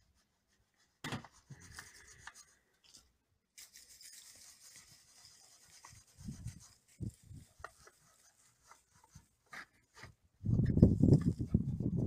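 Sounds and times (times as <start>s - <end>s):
broom sweeping on stone: 3.6s - 10.0s.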